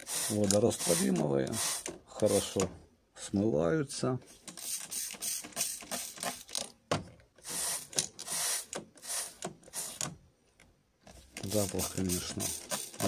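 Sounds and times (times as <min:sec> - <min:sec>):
spray bottle squirting: 0:00.0 - 0:02.6, 0:04.5 - 0:06.4, 0:07.4 - 0:10.0, 0:11.4 - 0:13.0.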